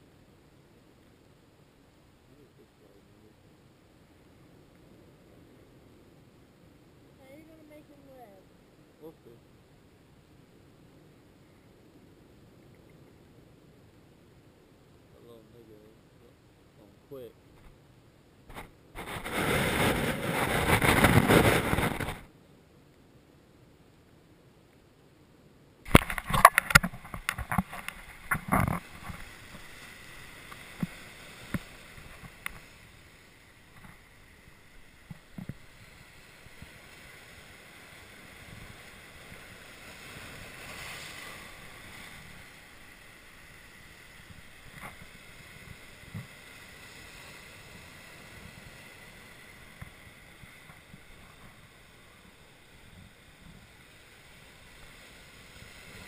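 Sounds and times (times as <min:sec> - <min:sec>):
knocks and splashes against camera: 0:18.5 - 0:22.3, 0:25.9 - 0:29.6
surf washing over rocks: 0:18.5 - 0:22.3, 0:25.8 - 0:56.0.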